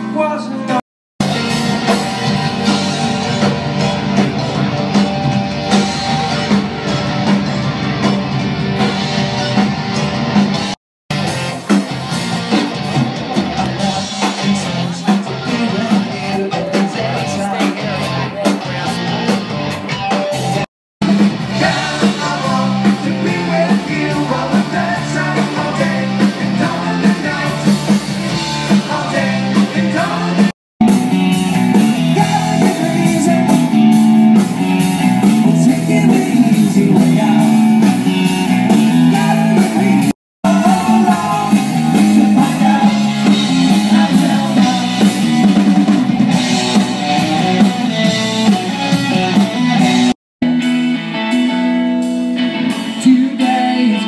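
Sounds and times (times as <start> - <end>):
live rock band playing: 0.0 - 54.0
person singing: 21.5 - 27.8, 32.0 - 33.8, 35.4 - 37.9, 38.9 - 45.4, 52.7 - 54.0.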